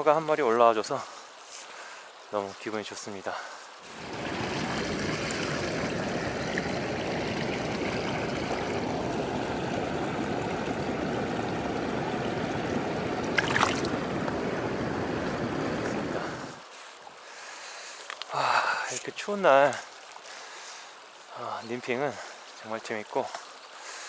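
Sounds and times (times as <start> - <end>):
river water rushing and gurgling: 0.1 - 24.0
water splash: 13.2 - 14.4.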